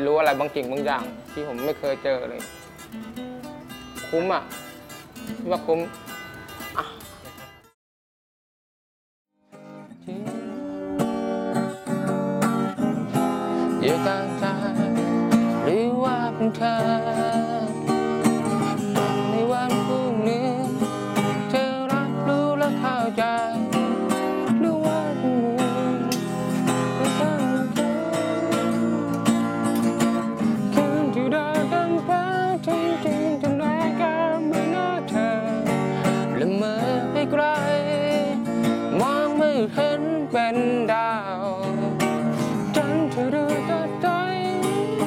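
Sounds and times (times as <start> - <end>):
acoustic guitar: 0.0 - 7.8, 9.4 - 45.0
person singing: 9.9 - 18.1, 19.2 - 29.7, 30.4 - 45.0.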